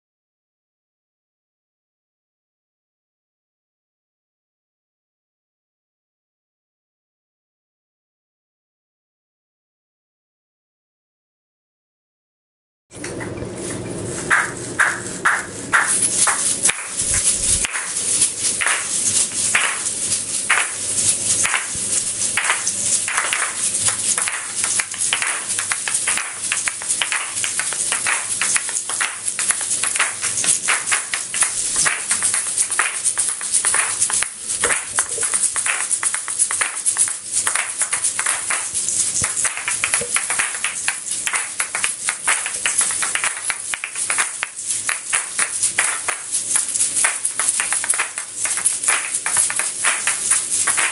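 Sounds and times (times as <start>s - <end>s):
rhythmic seed shaker rattle: 14.0s - 50.9s
shaker shells clacking: 14.3s - 50.9s.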